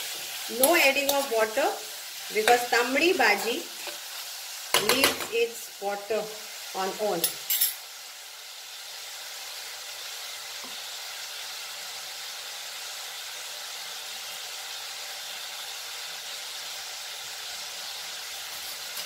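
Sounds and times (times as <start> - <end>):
vegetables sizzling in pan: 0.0 - 19.0.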